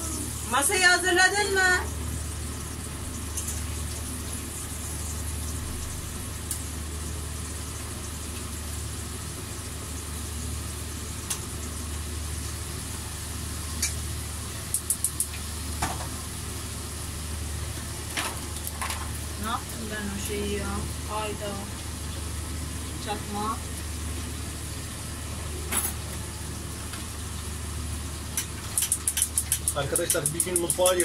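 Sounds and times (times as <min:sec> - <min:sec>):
low kitchen hum: 0:00.0 - 0:31.0
sharp clicks: 0:14.7 - 0:15.4, 0:28.4 - 0:31.0.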